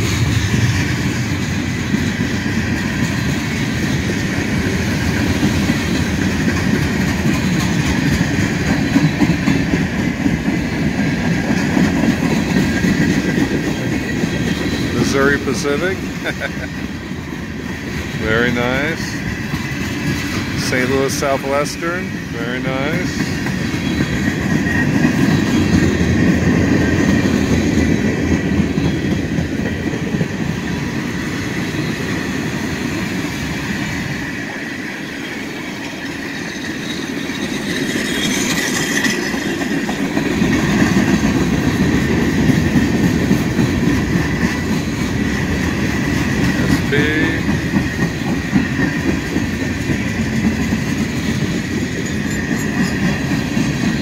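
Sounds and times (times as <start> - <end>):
train wheels rumbling on rails: 0.0 - 54.0
high wheel squeal: 13.5 - 16.0, 23.6 - 26.1, 34.5 - 39.9, 51.0 - 54.0.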